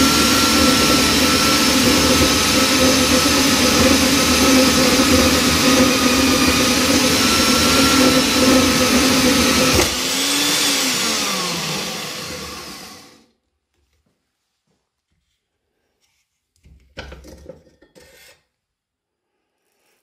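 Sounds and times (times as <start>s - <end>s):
band saw motor whine: 0.0s - 13.2s.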